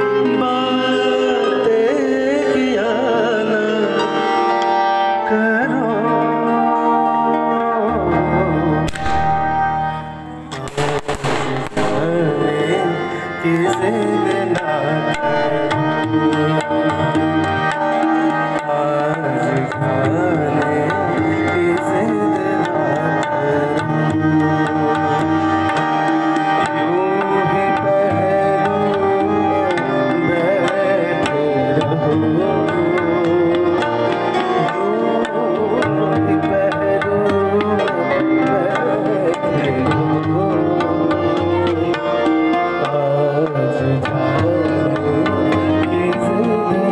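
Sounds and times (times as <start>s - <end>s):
tabla rhythm: 0.0s - 46.9s
melody lines: 8.5s - 16.6s.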